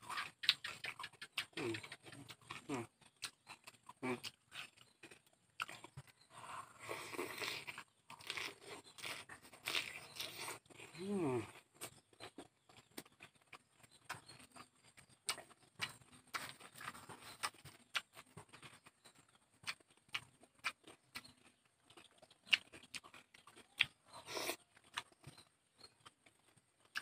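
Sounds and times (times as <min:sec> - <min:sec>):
close chewing and crunching: 0:00.0 - 0:27.0
person humming: 0:11.0 - 0:11.5.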